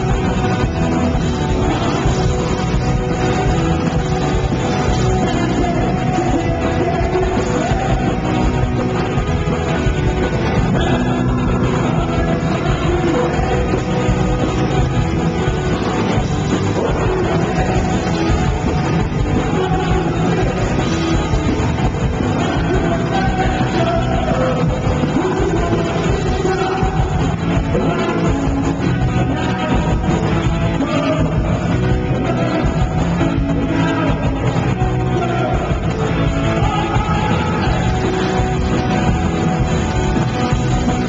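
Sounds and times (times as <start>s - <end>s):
person singing: 0.0s - 9.5s, 10.1s - 41.0s
punk rock band playing live: 0.0s - 41.0s.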